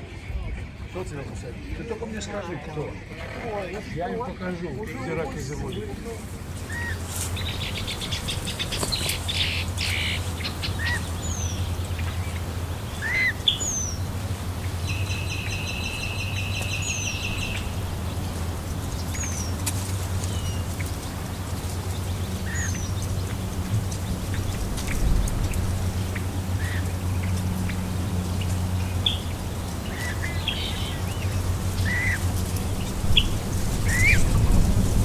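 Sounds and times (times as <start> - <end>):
birds chirping: 0.0 - 35.0
buzzy bird trill: 6.6 - 34.4.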